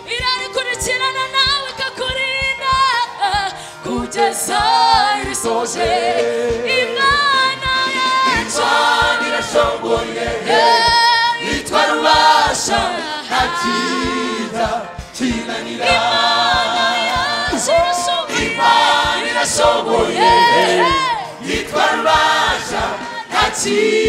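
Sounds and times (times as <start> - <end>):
lead singers on microphones: 0.0 - 24.0
women's choir singing: 3.8 - 24.0
steady beat: 4.6 - 24.0.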